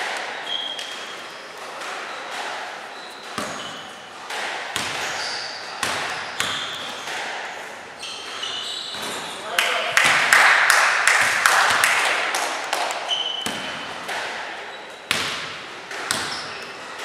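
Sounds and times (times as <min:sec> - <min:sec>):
high squeaks: 0:00.4 - 0:04.2, 0:04.8 - 0:09.5, 0:13.1 - 0:14.0
basketball bouncing on gym floor: 0:03.2 - 0:07.3, 0:08.0 - 0:10.3, 0:11.2 - 0:12.0, 0:12.7 - 0:14.4, 0:15.1 - 0:17.0.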